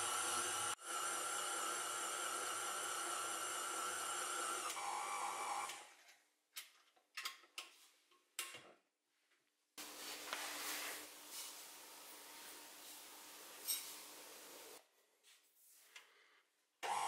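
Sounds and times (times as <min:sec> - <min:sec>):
stand mixer motor running: 0:00.0 - 0:05.6.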